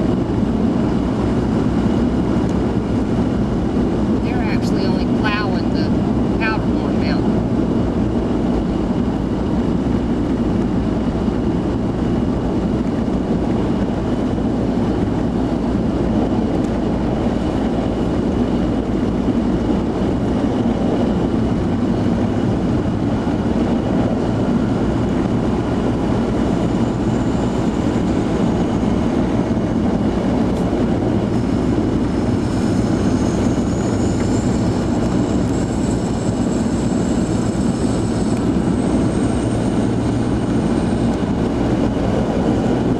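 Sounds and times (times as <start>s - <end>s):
vehicle engine and tyre rumble: 0.0s - 42.9s
faint high whine: 30.6s - 42.4s.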